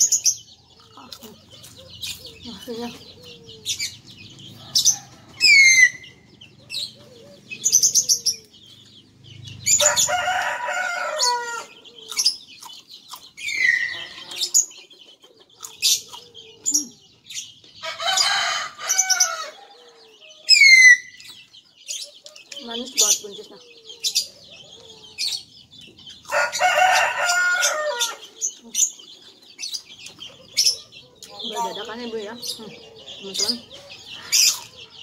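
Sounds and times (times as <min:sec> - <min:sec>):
small birds chirping: 0:00.0 - 0:35.0
rooster crowing: 0:09.7 - 0:11.8, 0:17.8 - 0:21.2, 0:26.3 - 0:28.3.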